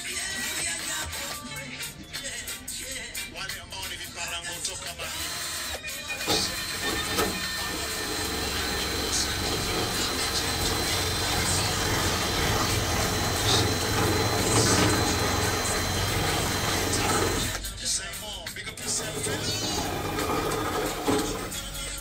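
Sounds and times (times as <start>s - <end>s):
cordless drill running: 6.2s - 17.7s, 18.8s - 21.7s.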